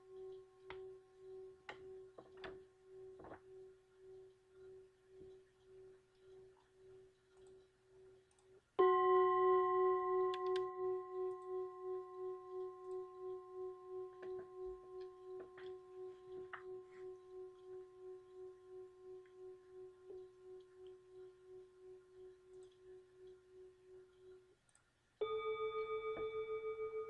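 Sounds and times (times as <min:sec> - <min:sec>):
singing bowl ringing: 0:08.8 - 0:22.0, 0:25.2 - 0:27.0.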